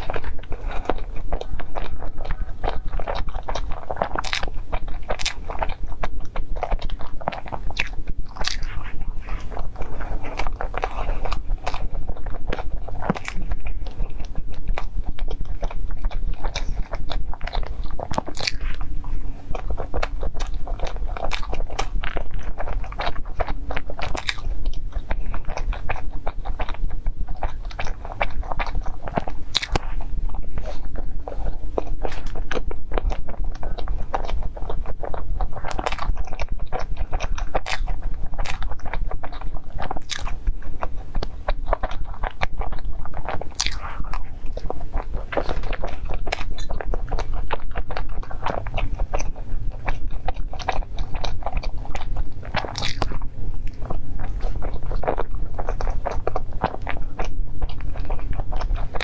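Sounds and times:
chewing pastry close up: 0:00.0 - 0:59.0
steady low hum: 0:00.0 - 0:59.0.

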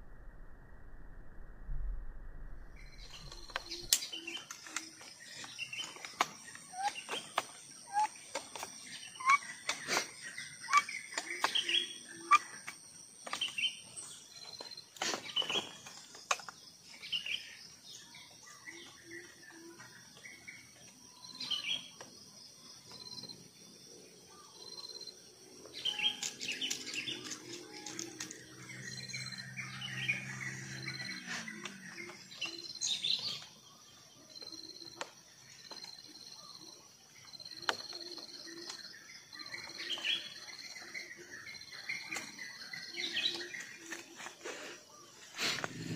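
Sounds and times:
high steady whine: 0:00.0 - 0:04.0
small birds chirping: 0:02.8 - 0:45.9.

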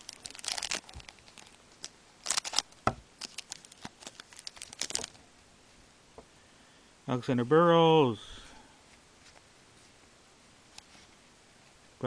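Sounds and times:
foil wrapper crinkling and tearing: 0:00.0 - 0:05.2.

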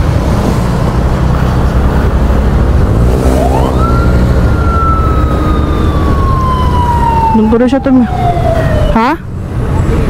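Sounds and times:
wind rumble: 0:00.0 - 0:10.0
siren wail: 0:03.2 - 0:09.3.

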